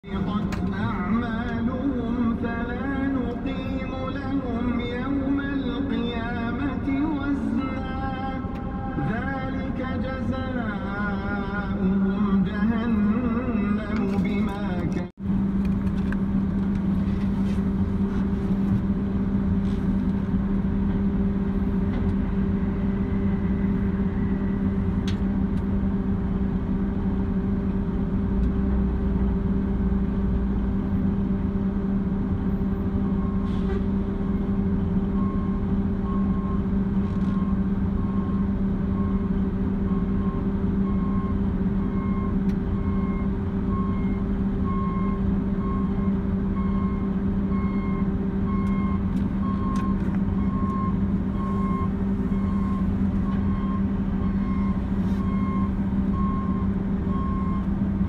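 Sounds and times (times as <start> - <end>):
diesel engine humming: 0.0 - 58.0
reversing alarm beeping: 33.0 - 33.5, 35.1 - 57.7.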